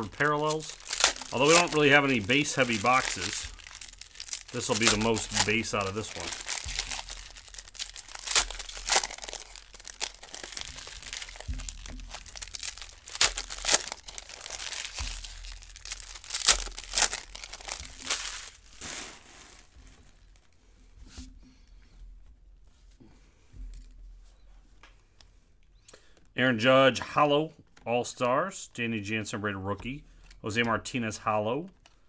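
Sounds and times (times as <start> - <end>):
foil wrappers tearing and crinkling: 0.0 - 20.6.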